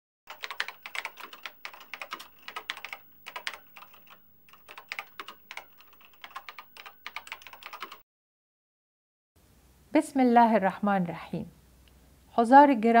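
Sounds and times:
keyboard typing: 0:00.3 - 0:08.0.

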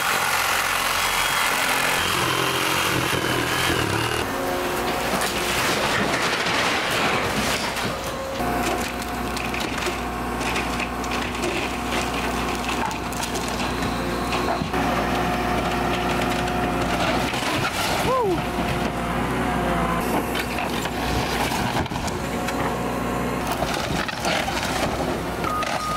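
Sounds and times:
wood cracking and splintering: 0:00.0 - 0:19.0, 0:23.4 - 0:25.8
excavator diesel engine: 0:00.0 - 0:25.9.

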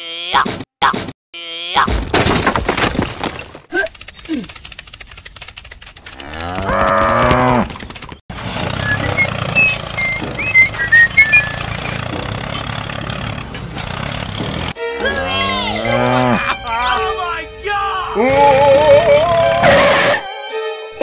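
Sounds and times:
cow mooing: 0:06.2 - 0:07.7, 0:15.1 - 0:16.6.

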